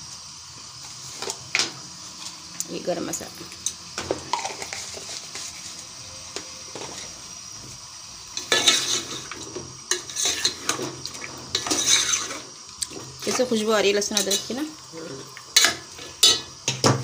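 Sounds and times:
chicken sizzling in oil: 0.0s - 17.0s
metal ladle scraping a pot: 8.4s - 13.4s, 15.5s - 16.5s.

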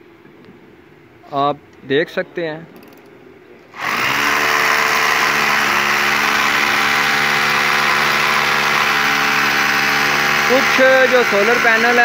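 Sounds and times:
electric drill drilling into concrete: 3.8s - 12.0s.

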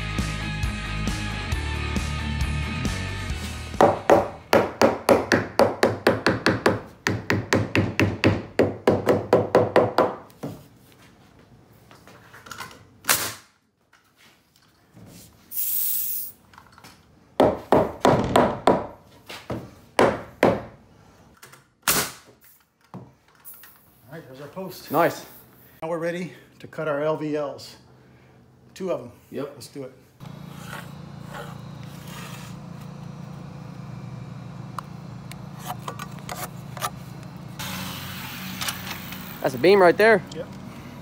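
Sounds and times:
air hiss: 15.5s - 16.4s
nail gun firing into wood: 21.8s - 22.3s.

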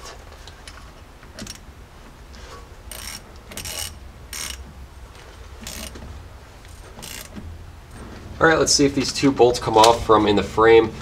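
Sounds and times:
ratchet wrench clicking: 2.9s - 4.6s, 5.6s - 6.0s, 6.7s - 7.4s.

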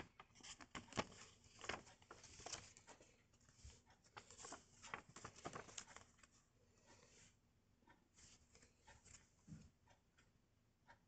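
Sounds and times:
paper rustling and crinkling: 0.0s - 6.4s.

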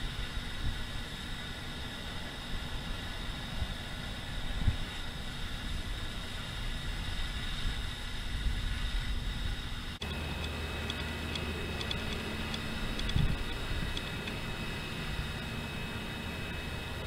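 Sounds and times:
steady low hum: 0.0s - 17.0s
wind buffeting microphone: 2.5s - 10.0s, 10.9s - 17.0s
faint ticks: 10.4s - 14.4s.

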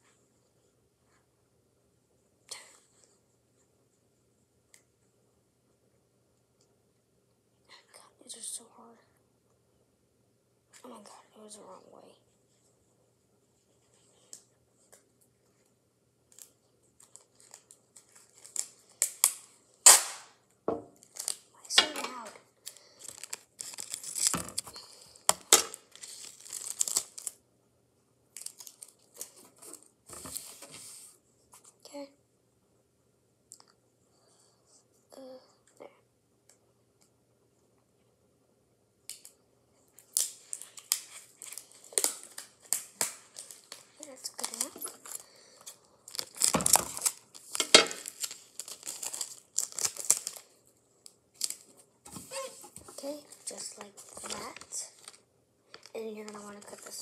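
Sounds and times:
tape and paper crinkling: 16.3s - 20.2s, 21.0s - 27.4s, 28.3s - 31.0s, 39.1s - 57.0s.

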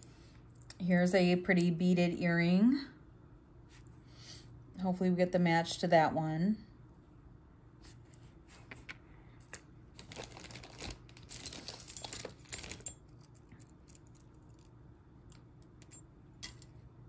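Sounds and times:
faint background hum: 0.0s - 17.0s
jewelry clicking and rustling: 8.8s - 16.8s.

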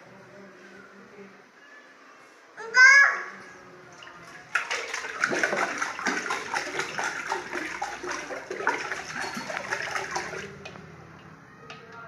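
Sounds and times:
water splashing in a metal pot: 4.0s - 10.8s.

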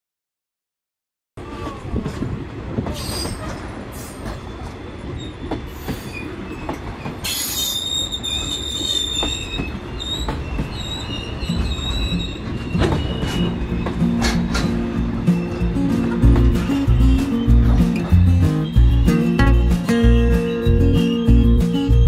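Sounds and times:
train coaches rumbling past: 1.4s - 22.0s
high-pitched wheel squeal: 5.2s - 22.0s.

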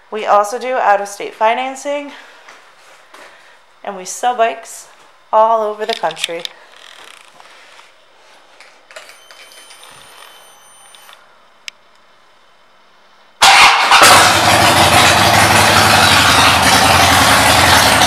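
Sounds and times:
faint steady whine: 0.0s - 13.4s
motorcycle engine starting and idling: 13.4s - 18.0s.

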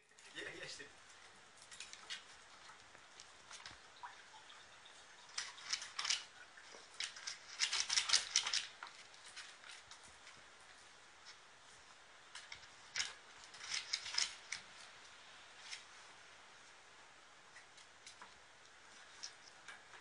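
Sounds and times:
puppy teeth scraping wire bars: 5.2s - 10.4s, 12.3s - 14.9s.

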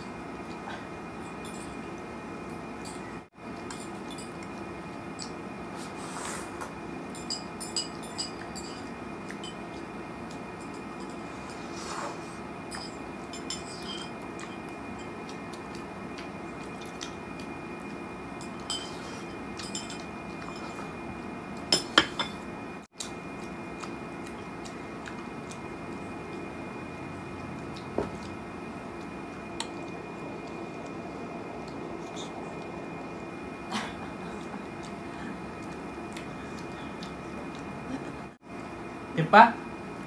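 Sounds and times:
faint steady hum: 0.0s - 40.0s
spoon clinking on a plate: 7.1s - 9.6s, 12.7s - 15.1s.

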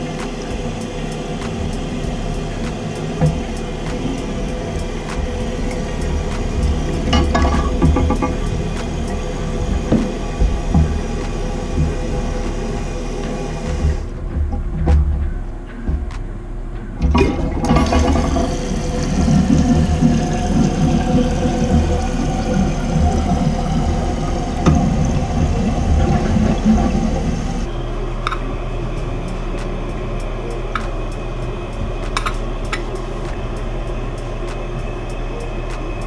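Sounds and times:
toilet tank refilling: 0.0s - 14.8s, 17.0s - 30.8s
toilet flushing: 0.0s - 14.9s, 17.0s - 36.0s.

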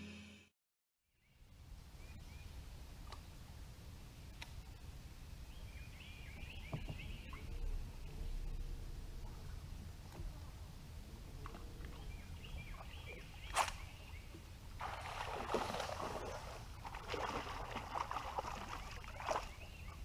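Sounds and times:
fish splashing in water: 14.8s - 20.0s.

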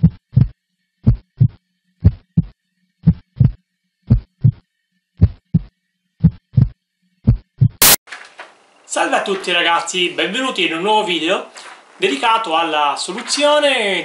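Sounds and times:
heartbeat thumps: 0.0s - 4.6s, 5.2s - 8.0s.

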